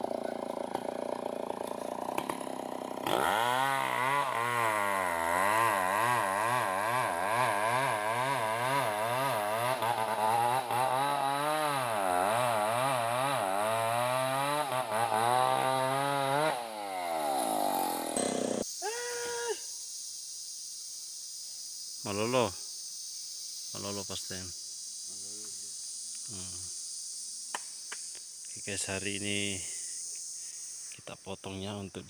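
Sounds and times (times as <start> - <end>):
chainsaw cutting log: 0.0 - 18.7.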